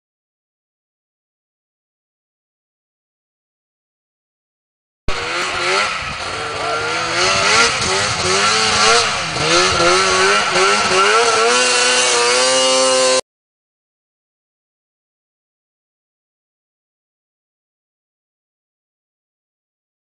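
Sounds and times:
snowmobile engine revving: 0:05.1 - 0:13.2.

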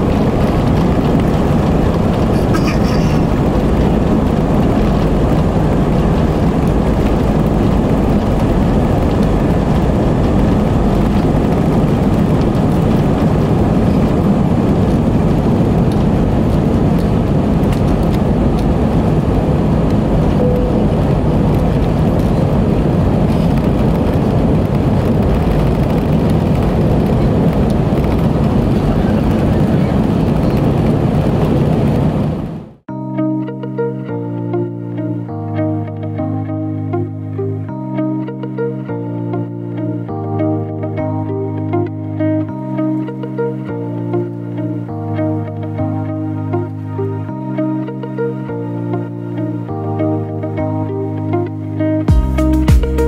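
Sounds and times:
jet engines roaring in cabin: 0:00.0 - 0:32.9.

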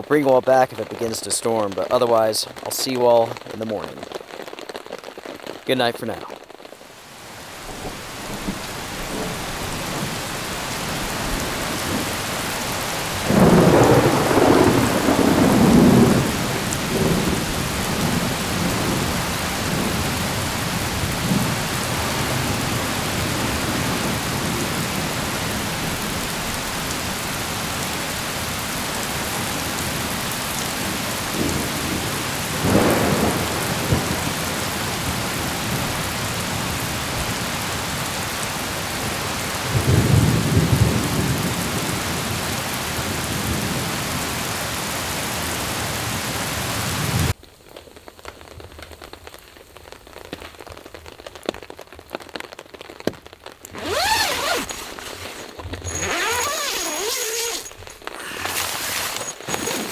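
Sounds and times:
heavy rain: 0:00.0 - 0:59.9
rolling thunder: 0:07.6 - 0:12.3, 0:13.1 - 0:20.4, 0:31.3 - 0:34.3.

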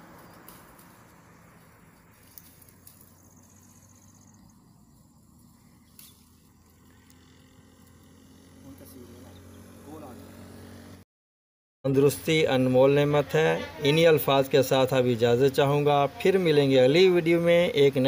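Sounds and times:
leaves snapping and rustling: 0:00.0 - 0:03.7, 0:05.3 - 0:08.0
high insect trill: 0:00.0 - 0:11.0
soft outdoor hiss: 0:00.0 - 0:11.0.

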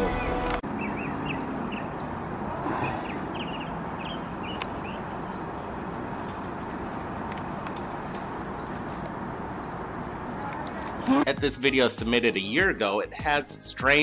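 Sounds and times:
outdoor background rush: 0:00.0 - 0:12.7
small birds chirping: 0:00.7 - 0:11.1.

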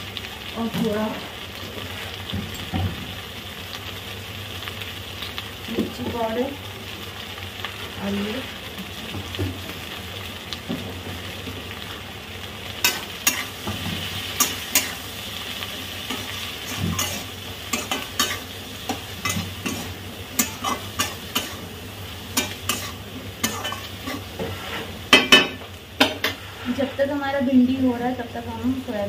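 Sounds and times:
vegetables sizzling in a pan: 0:00.0 - 0:29.0
metal spatula scraping pan: 0:22.4 - 0:27.0.

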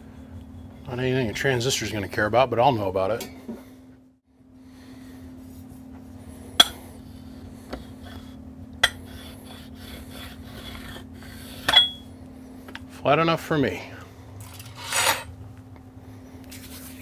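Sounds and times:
steel straightedge scraping metal: 0:14.4 - 0:15.3.

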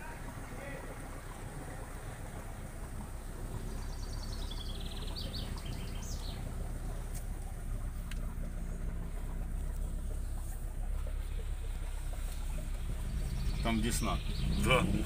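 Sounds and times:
vehicle engine idling: 0:00.0 - 0:15.0
songbird trilling: 0:03.6 - 0:07.0.

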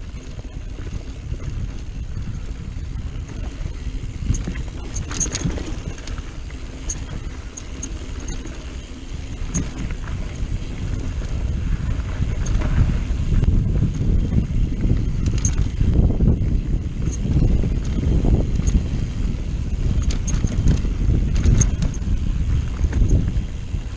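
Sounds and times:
bike tyres rolling on dirt: 0:00.0 - 0:23.9
wind buffeting microphone: 0:00.0 - 0:23.9
sharp clicks: 0:15.2 - 0:15.8, 0:20.0 - 0:22.0.

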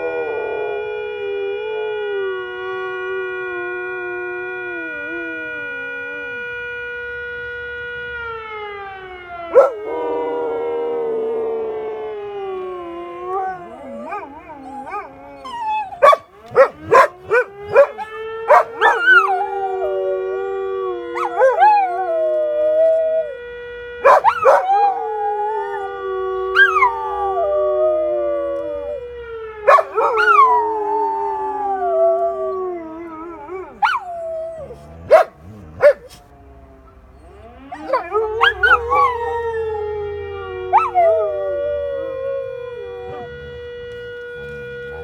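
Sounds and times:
dogs howling: 0:00.0 - 0:06.5, 0:09.4 - 0:45.0
siren: 0:00.0 - 0:45.0
dogs yipping and barking: 0:14.0 - 0:19.3, 0:35.0 - 0:36.2.

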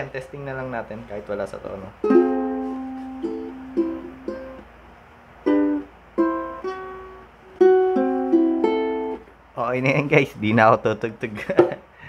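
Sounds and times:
ukulele strummed chords: 0:02.0 - 0:04.8, 0:05.4 - 0:09.4.

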